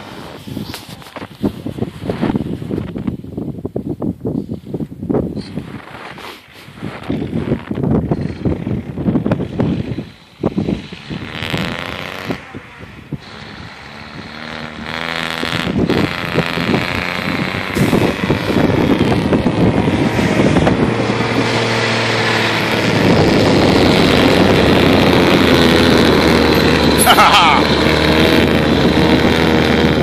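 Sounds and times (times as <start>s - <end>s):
truck engine working under load: 6.8s - 30.0s.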